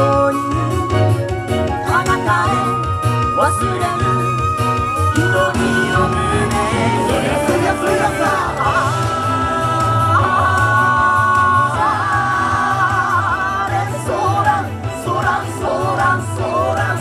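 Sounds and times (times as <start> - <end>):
person singing: 5.0 - 17.0.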